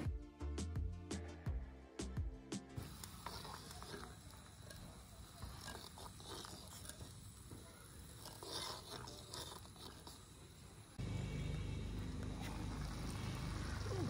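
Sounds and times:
tiny spoon stirring in clay pot: 2.8s - 13.2s.

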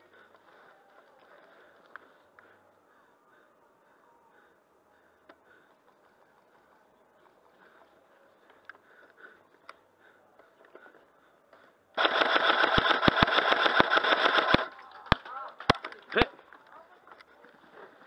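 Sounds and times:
airsoft rifle full-auto burst: 12.0s - 14.7s.

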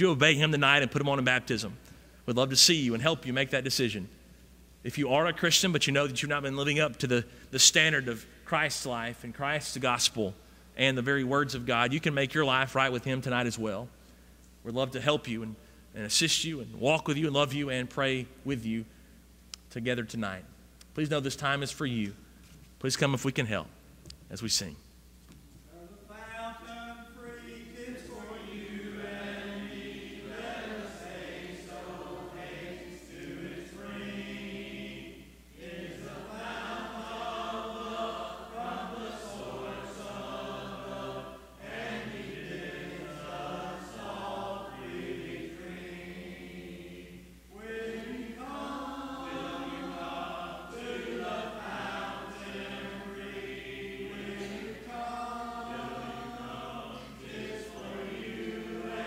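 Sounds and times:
congregation singing a hymn: 0.0s - 1.7s, 25.7s - 59.0s.

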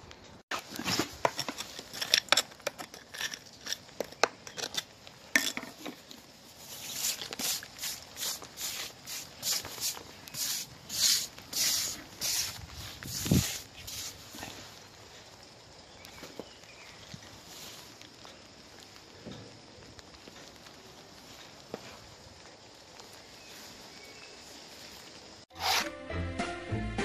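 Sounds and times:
stiff brush scrubbing stone: 6.6s - 14.6s, 25.5s - 25.9s.

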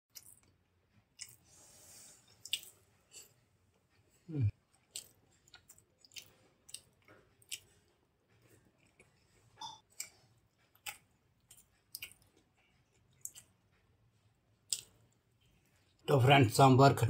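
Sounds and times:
chewing and wet mouth clicks: 0.1s - 1.4s, 2.4s - 3.3s, 4.7s - 8.0s, 8.8s - 13.6s, 14.7s - 15.0s.

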